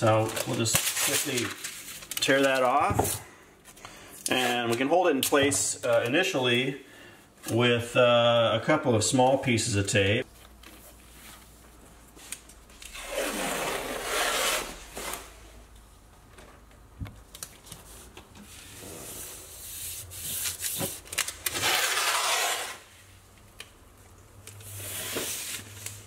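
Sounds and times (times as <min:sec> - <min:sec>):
tape ripping off roll: 0:12.8 - 0:15.4, 0:20.4 - 0:22.9.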